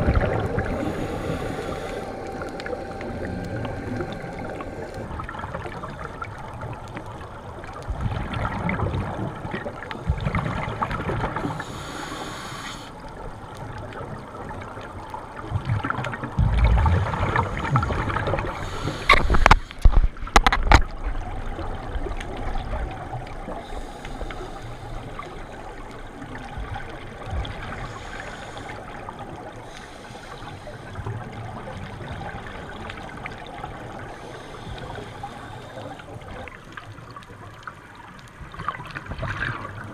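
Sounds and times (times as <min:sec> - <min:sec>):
regulator breathing underwater: 0:00.0 - 0:06.3, 0:11.4 - 0:13.0, 0:17.2 - 0:20.0, 0:23.5 - 0:25.8, 0:27.7 - 0:31.1, 0:34.1 - 0:36.3
gurgling exhaled bubbles: 0:00.0 - 0:11.9, 0:13.3 - 0:24.5, 0:38.4 - 0:39.9.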